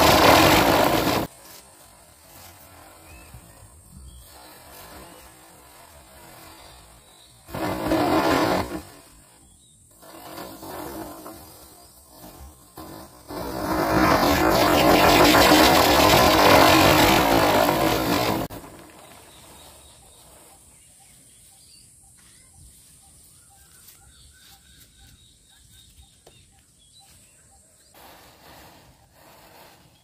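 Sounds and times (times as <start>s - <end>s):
firework hissing sparks: 0.0s - 9.4s, 10.0s - 19.6s, 28.0s - 30.0s.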